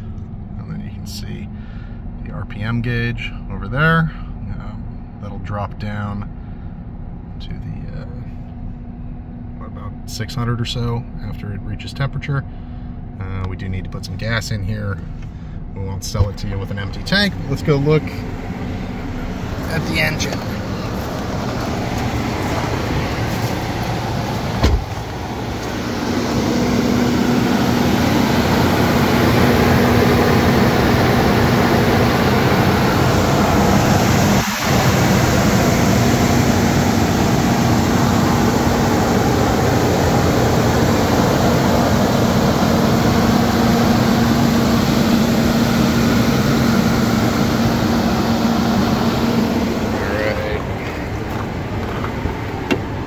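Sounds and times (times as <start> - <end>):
car engine idling: 12.2 - 53.0.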